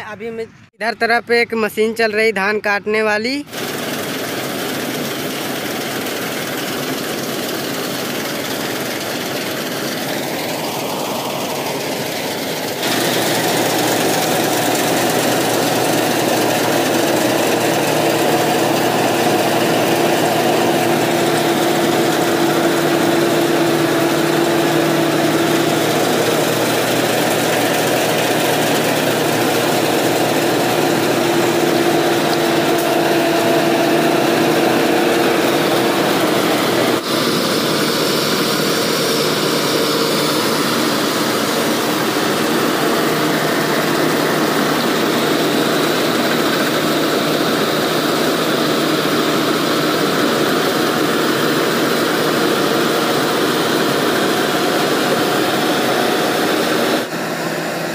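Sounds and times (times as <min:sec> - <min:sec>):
combine harvester running: 0:03.4 - 0:57.9.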